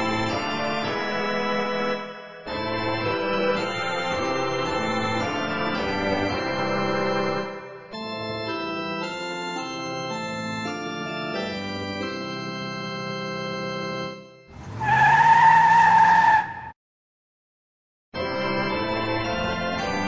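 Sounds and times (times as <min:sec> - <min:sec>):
organ playing held chords: 0:00.0 - 0:14.4, 0:18.2 - 0:20.0
tyres skidding screech: 0:14.5 - 0:16.8.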